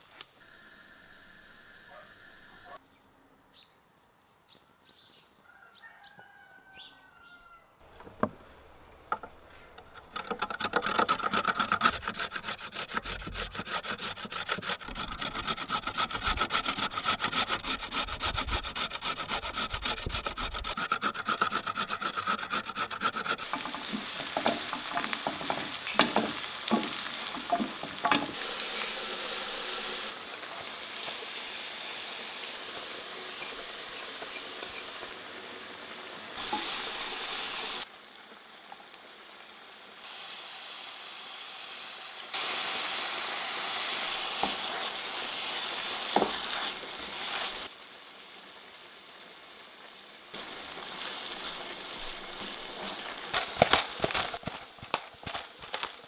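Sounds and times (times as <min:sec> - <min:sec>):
carrot grated on metal grater: 0:10.1 - 0:27.0
onions sizzling in frying pan: 0:23.4 - 0:56.0.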